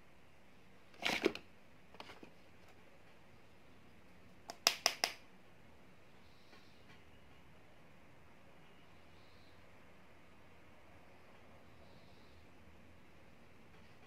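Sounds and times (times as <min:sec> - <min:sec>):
makeup items clicking: 0:04.5 - 0:05.2.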